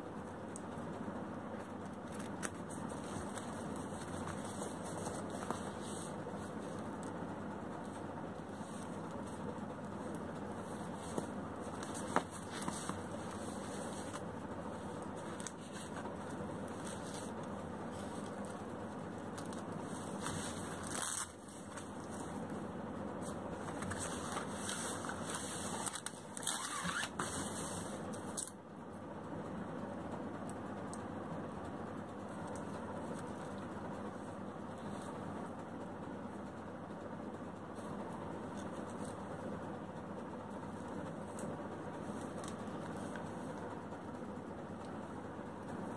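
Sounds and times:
steady background hum: 0.0 - 45.9
rustling and scraping of bat cover: 1.8 - 7.2, 7.8 - 22.6, 23.2 - 28.5.

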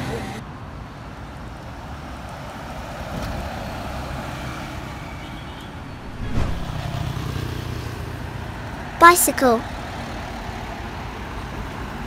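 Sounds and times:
truck driving by: 4.3 - 8.8.

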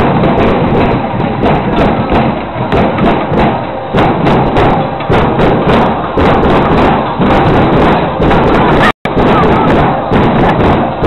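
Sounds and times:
sharp percussive hits: 0.0 - 11.0.

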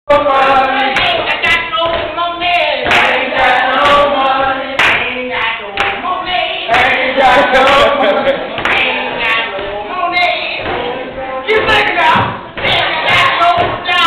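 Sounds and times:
group singing held notes: 0.1 - 14.0.

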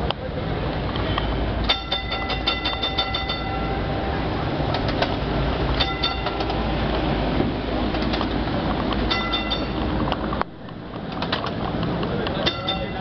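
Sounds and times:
tram rumbling: 0.0 - 13.0
tram bell ringing: 1.4 - 7.1, 9.0 - 10.1, 12.4 - 13.0.

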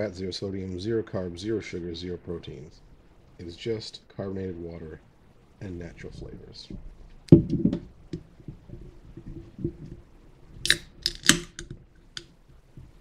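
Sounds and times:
can pull tab cracking open: 10.6 - 12.3.

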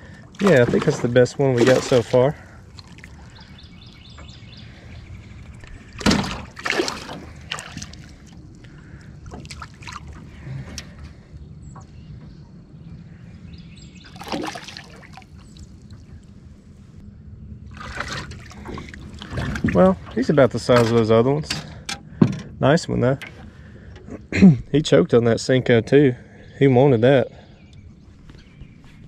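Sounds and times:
water sloshing against boat: 0.0 - 17.0, 17.6 - 29.0
sharp splashes and knocks: 0.4 - 3.5, 5.8 - 8.4, 9.2 - 10.3, 14.0 - 16.1, 17.7 - 22.4.

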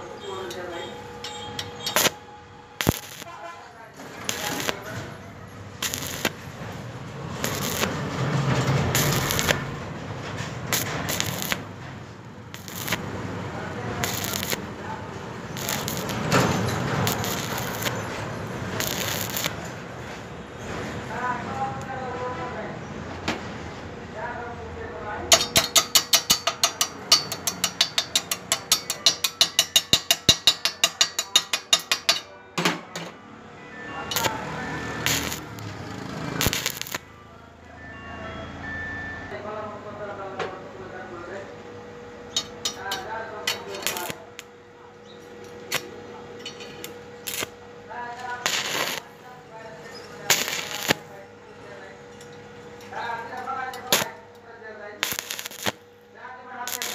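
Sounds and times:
chipping hammer tapping metal: 0.5 - 2.2, 2.8 - 3.3, 4.2 - 5.0, 5.8 - 6.4, 7.4 - 9.7, 10.6 - 11.7, 12.5 - 13.1, 14.0 - 14.7, 15.5 - 19.6, 25.3 - 32.3, 35.0 - 35.6, 36.4 - 37.0, 42.3 - 44.5, 48.4 - 49.0, 50.0 - 51.0, 55.0 - 55.8, 56.7 - 56.9
welding arc crackling: 1.2 - 9.9, 10.6 - 20.0, 25.3 - 32.2, 34.1 - 37.1, 42.3 - 44.5, 45.6 - 46.0, 46.7 - 49.2, 50.1 - 51.2, 53.0 - 54.3, 54.9 - 55.9, 56.6 - 56.9.

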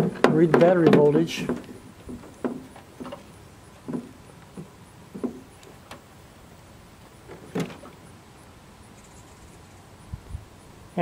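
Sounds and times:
knocks and rubs of handled leads: 0.0 - 6.2.

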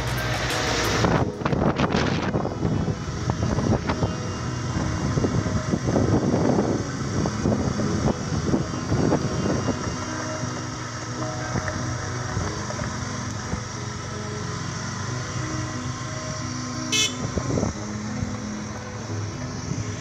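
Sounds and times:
wind on microphone: 0.0 - 13.8
knocks and rattles from rough road: 0.0 - 15.8
vehicle engine running: 0.0 - 20.0.

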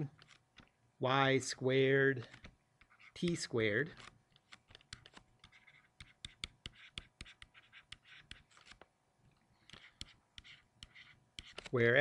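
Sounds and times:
stylus tapping and scratching: 2.2 - 8.9, 9.6 - 11.9.

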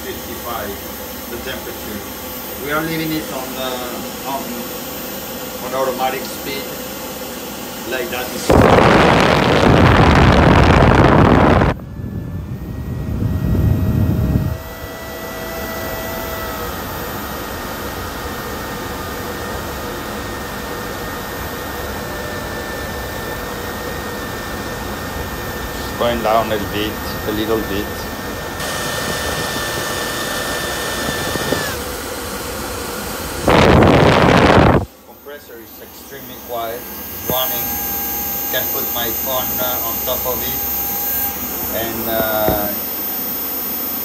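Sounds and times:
air conditioner blower rushing: 0.0 - 44.0
faint steady whine: 0.0 - 44.0
airflow on microphone: 7.8 - 15.2, 25.6 - 31.8, 33.3 - 42.8
air rushing from duct: 8.5 - 14.6, 33.4 - 34.9.

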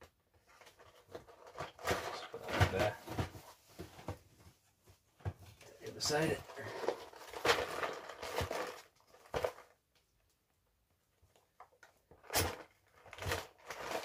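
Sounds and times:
cardboard scraping and rustling: 0.5 - 4.4.

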